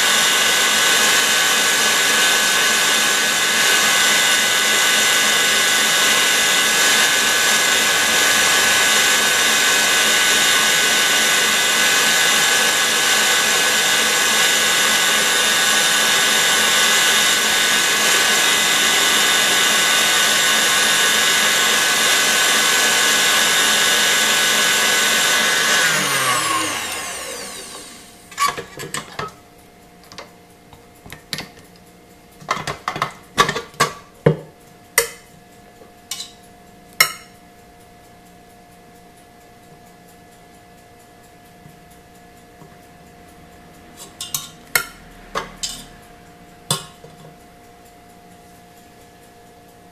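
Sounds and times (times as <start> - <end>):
mixer motor winding down: 0.0 - 28.8
stand mixer high whine: 0.0 - 29.2.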